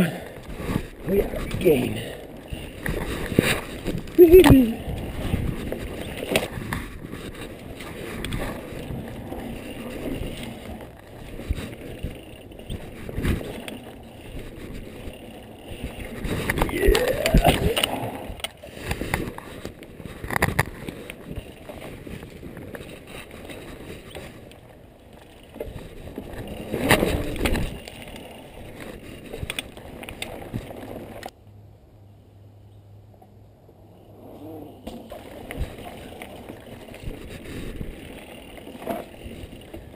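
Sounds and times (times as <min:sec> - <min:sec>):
bike knocking and rattling: 0:00.0 - 0:31.4, 0:34.3 - 0:39.9
bike tyres on dirt: 0:00.0 - 0:31.4, 0:33.8 - 0:39.9
wind on microphone: 0:02.4 - 0:24.2.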